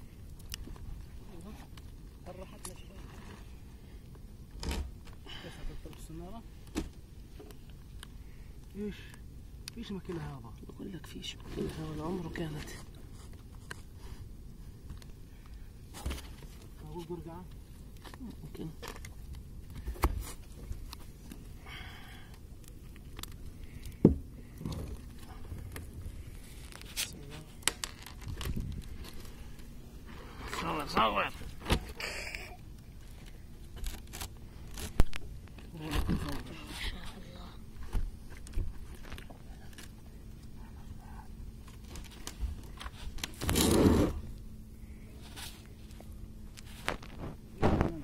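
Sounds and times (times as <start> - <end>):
knocks and scrapes on boat deck: 42.4 - 44.3.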